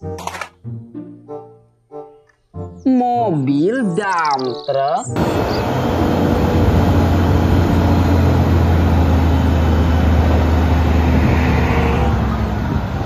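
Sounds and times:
diesel truck engine running: 0:05.2 - 0:13.0.

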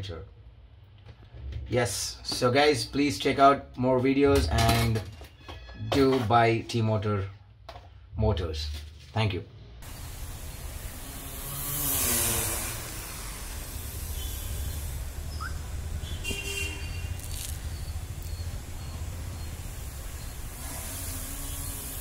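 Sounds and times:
drone propeller hum: 0:09.8 - 0:22.0.

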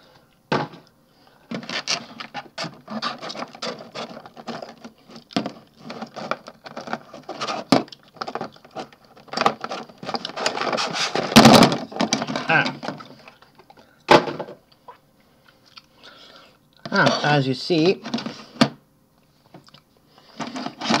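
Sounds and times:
plastic packaging crackling: 0:01.5 - 0:13.4.

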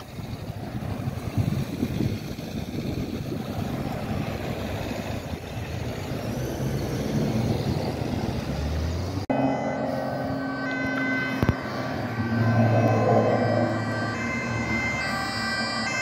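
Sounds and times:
helicopter rotor and engine rumble: 0:00.0 - 0:06.4.

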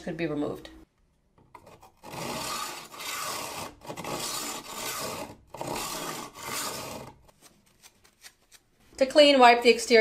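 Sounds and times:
knife scraping on knife sharpener: 0:01.6 - 0:07.2.

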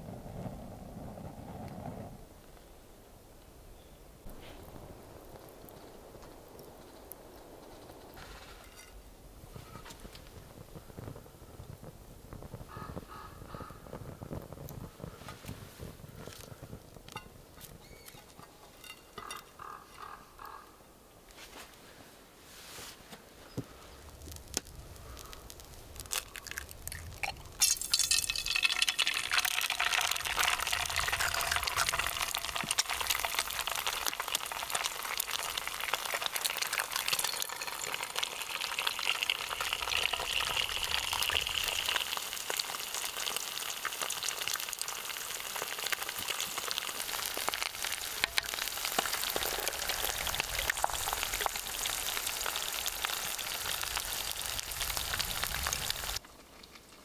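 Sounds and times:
eggs sizzling in hot oil: 0:24.3 - 0:56.2.

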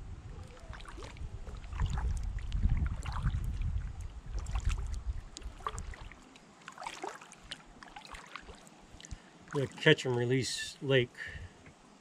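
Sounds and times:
wind buffeting microphone: 0:00.0 - 0:06.1
paddle splashes and drips: 0:00.4 - 0:10.3.

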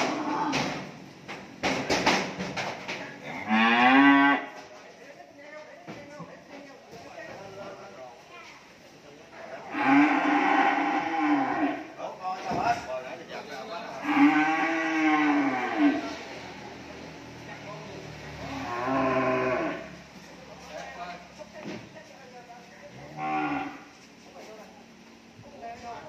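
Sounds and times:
cattle mooing: 0:03.3 - 0:04.5, 0:09.6 - 0:11.9, 0:14.0 - 0:16.2, 0:18.4 - 0:20.0, 0:23.0 - 0:23.9.

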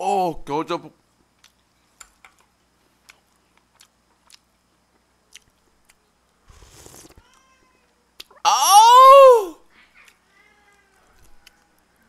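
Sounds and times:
faint chewing: 0:01.2 - 0:01.8, 0:02.4 - 0:07.4
slurp of soup: 0:06.5 - 0:07.2.

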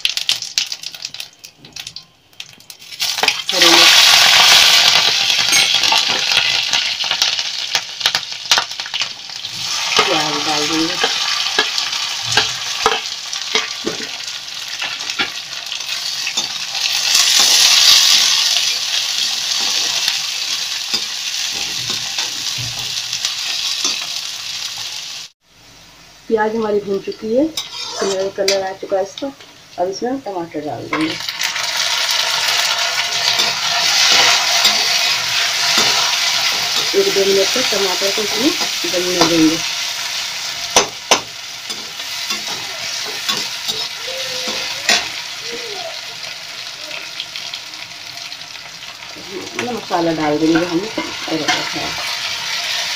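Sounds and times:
onions sizzling in oil: 0:00.0 - 0:52.9
spatula scraping and knocking: 0:27.6 - 0:28.3.

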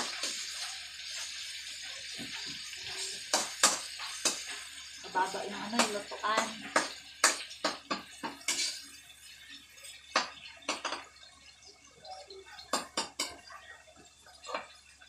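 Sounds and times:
metal utensil clinking on a wok: 0:05.8 - 0:08.8.

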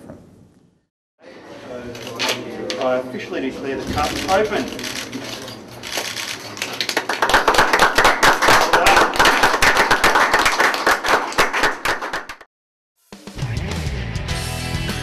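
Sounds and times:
crowd applauding: 0:06.0 - 0:12.5.

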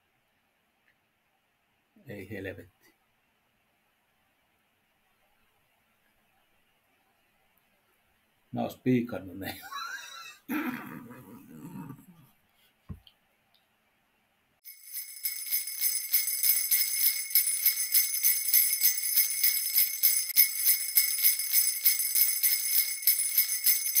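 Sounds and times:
jingle bells shaken: 0:14.6 - 0:24.0.

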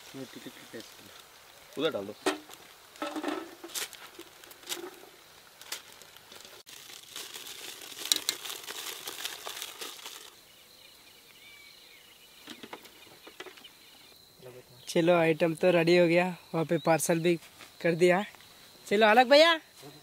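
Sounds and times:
aluminium foil crinkling: 0:00.1 - 0:10.4
high insect drone: 0:00.1 - 0:20.0.

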